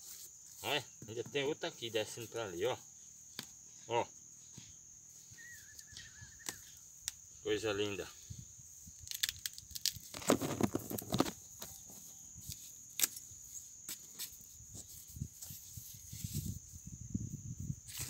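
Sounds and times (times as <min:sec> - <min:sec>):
high insect buzz: 0:00.0 - 0:18.0
hands scraping hard soil: 0:09.1 - 0:13.2.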